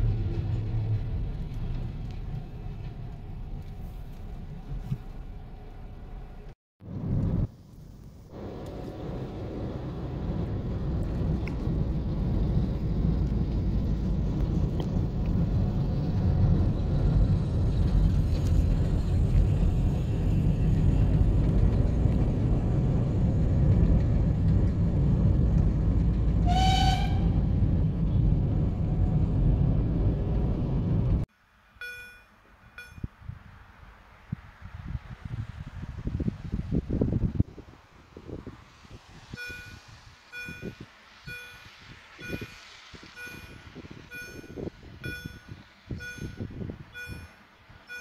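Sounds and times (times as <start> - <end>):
steady low rumble: 0.0 - 32.2
steam locomotive whistle: 26.4 - 27.4.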